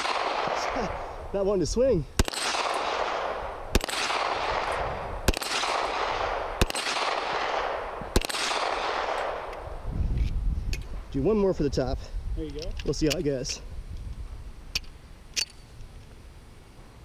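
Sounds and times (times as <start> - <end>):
pistol shots echoing: 0.0 - 1.0, 2.2 - 9.7.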